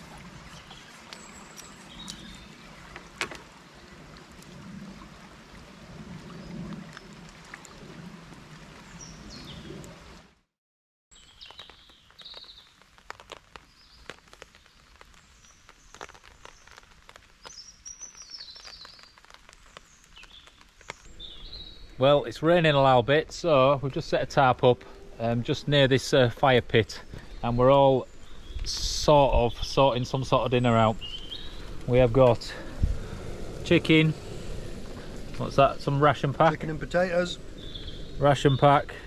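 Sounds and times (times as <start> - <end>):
bird calls: 0.0 - 3.2, 30.6 - 31.8, 36.8 - 38.9
low steady rush of lake shore: 0.0 - 10.4, 11.2 - 39.0.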